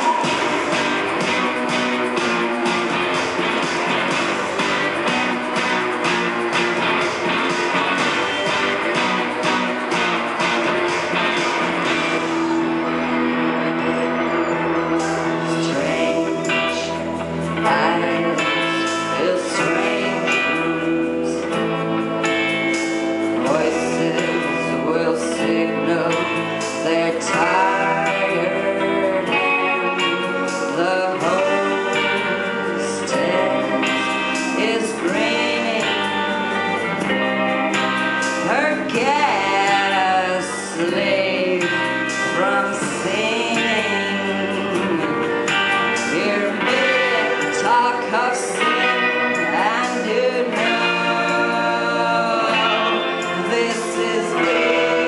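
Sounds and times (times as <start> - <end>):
electric guitars playing: 0.0 - 55.0
woman singing into microphone: 15.0 - 22.0, 23.3 - 37.2, 38.4 - 55.0.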